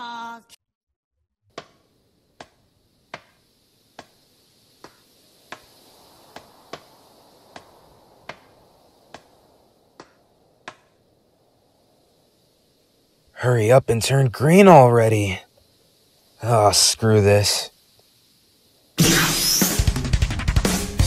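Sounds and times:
faint steady hiss: 1.5s - 21.0s.

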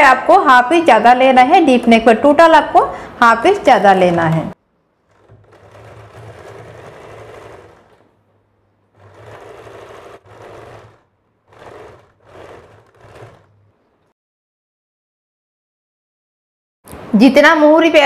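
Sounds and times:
sewing machine stitching: 4.0s - 8.3s, 8.9s - 14.1s.

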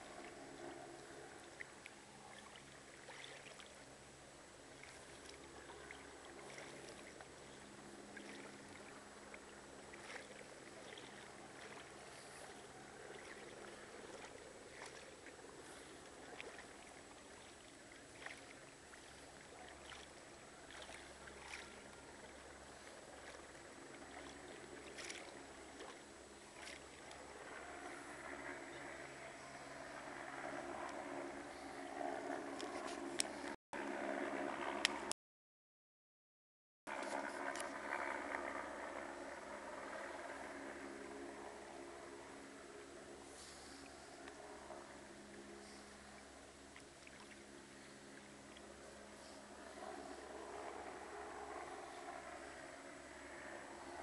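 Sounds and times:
floodwater sloshing: 0.0s - 28.8s, 46.1s - 49.2s
light water splashes: 0.0s - 33.6s, 43.0s - 52.8s.

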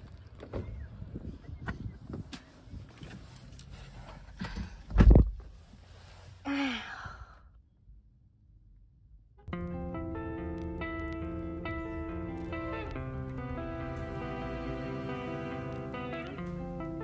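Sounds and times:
person sighing: 6.5s - 7.5s
music: 9.5s - 17.0s.

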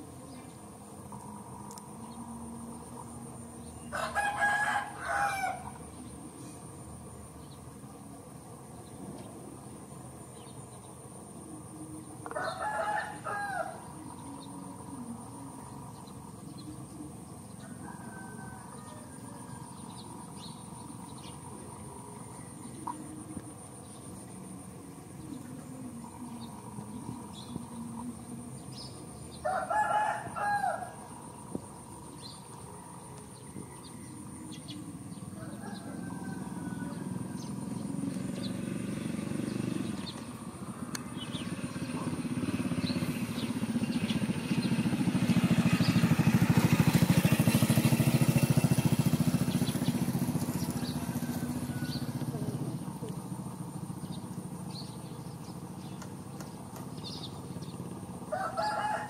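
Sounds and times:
vehicle engine approaching: 0.0s - 59.0s
rooster crowing: 3.8s - 5.9s, 12.2s - 14.0s, 17.6s - 20.5s, 29.4s - 31.4s, 32.5s - 38.5s, 50.1s - 52.6s, 58.2s - 59.0s.

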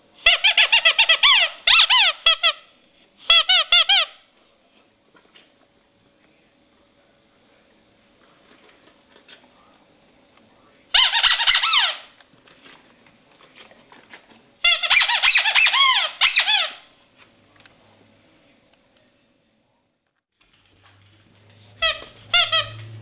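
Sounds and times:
rubber dog toy squeaking: 0.2s - 4.2s, 10.9s - 12.2s, 14.6s - 16.9s, 21.8s - 23.0s.

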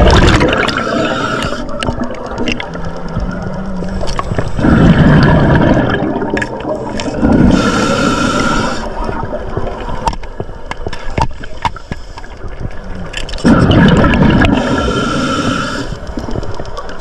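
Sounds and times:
gurgling exhaled bubbles: 0.0s - 10.0s, 13.4s - 15.9s.

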